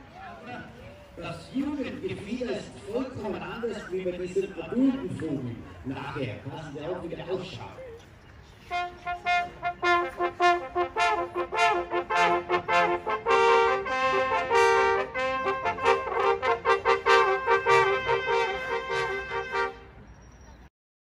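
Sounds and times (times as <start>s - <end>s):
brass horns playing fanfare: 8.6s - 20.0s.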